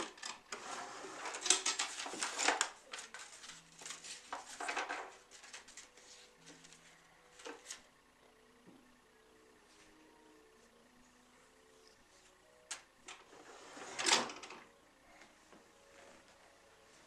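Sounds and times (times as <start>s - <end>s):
papers and objects rustling in a box: 0.0s - 7.8s.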